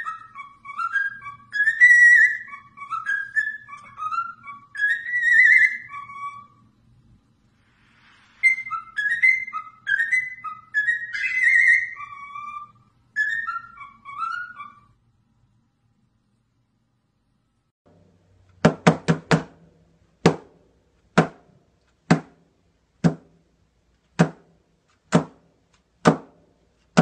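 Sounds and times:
bird whistling a tune: 0.0 - 6.7, 8.2 - 15.0.

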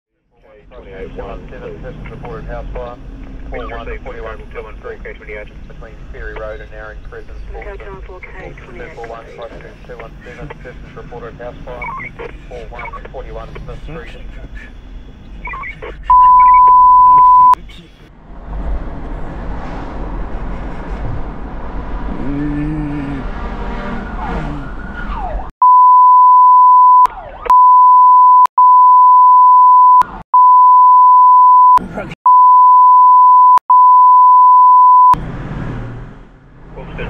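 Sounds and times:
engine and road noise: 0.1 - 37.0
censor bleep tone: 15.4 - 17.6, 25.6 - 35.2
low horn blast: 22.9 - 24.7
siren sweeping: 23.9 - 25.5.

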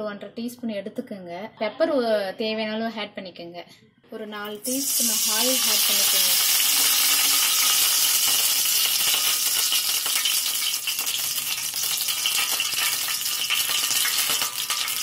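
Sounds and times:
oil crackling: 4.5 - 15.0
oil sizzling in a hot pan: 4.5 - 15.0.

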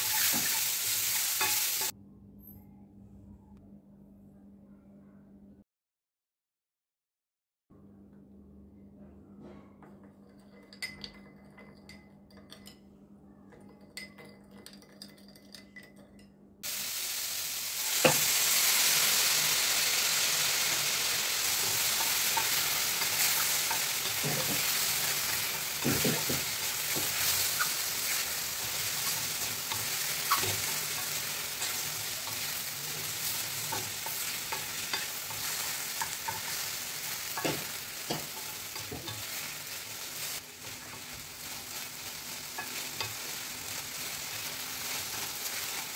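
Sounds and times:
vegetables sizzling in pan: 0.0 - 1.9, 16.6 - 45.9
spoon clinking ceramic bowl: 10.2 - 12.9, 13.5 - 16.4
spatula scraping and tapping metal pan: 33.2 - 39.5.

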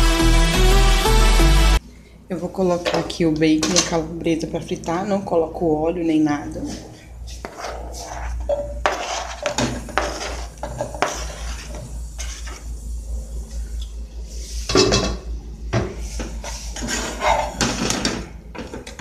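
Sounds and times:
spatula knocking and scraping pot: 6.6 - 12.7, 14.7 - 19.0.

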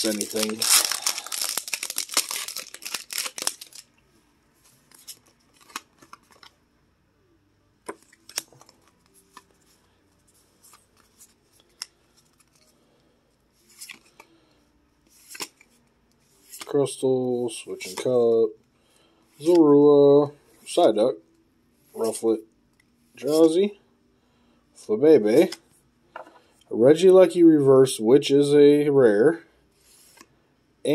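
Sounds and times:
foil wrapper crinkling: 0.0 - 3.9
trading cards sliding together: 15.1 - 16.7, 17.8 - 18.1, 29.8 - 30.3.

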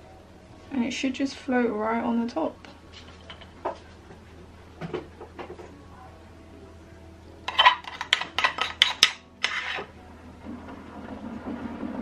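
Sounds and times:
metal spoon scraping ceramic bowl: 7.5 - 9.9.

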